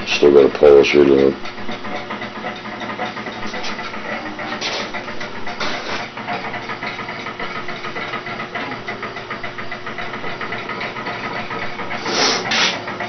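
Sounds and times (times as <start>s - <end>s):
mechanical hiss: 12.0s - 12.8s.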